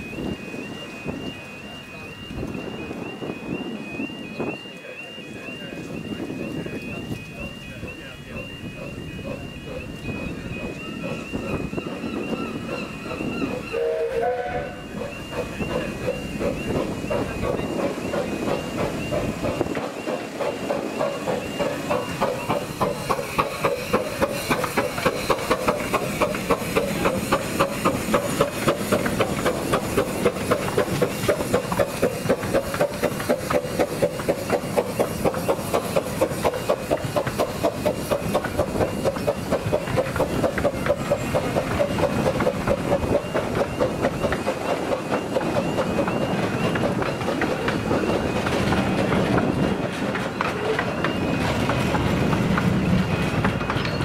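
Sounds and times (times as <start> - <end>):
level crossing alarm tones: 0.0 - 23.1
steam hissing: 5.9 - 53.8
wheels clacking over rail joints: 6.8 - 54.0
steam train whistle: 8.4 - 17.0.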